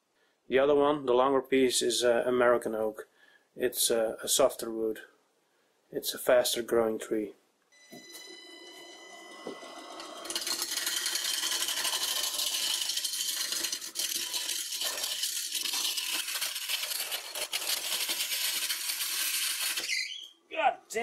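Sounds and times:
lathe running hum: 0:08.2 - 0:16.0
gouge shaving wood on lathe: 0:09.6 - 0:19.9.

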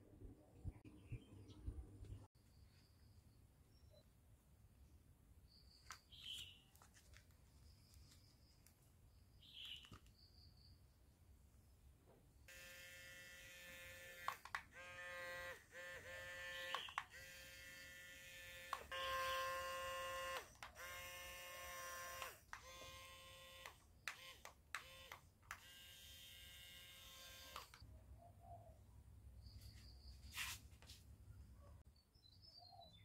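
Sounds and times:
small motor whining: 0:12.5 - 0:27.8
short clicks: 0:14.1 - 0:14.8, 0:16.5 - 0:17.2, 0:27.4 - 0:27.8.

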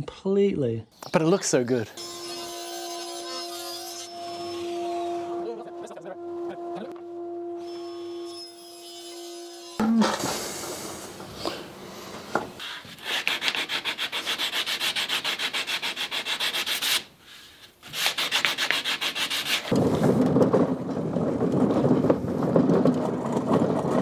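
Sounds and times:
sanding block on plywood: 0:12.6 - 0:17.1, 0:17.8 - 0:19.8
wooden cart rolling on concrete: 0:19.7 - 0:24.0.

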